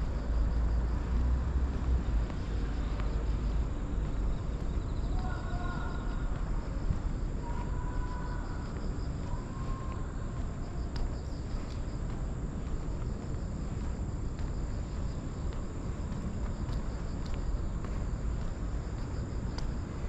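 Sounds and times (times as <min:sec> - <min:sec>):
street traffic rumble: 0:00.0 - 0:20.0
insects trilling: 0:02.7 - 0:12.0.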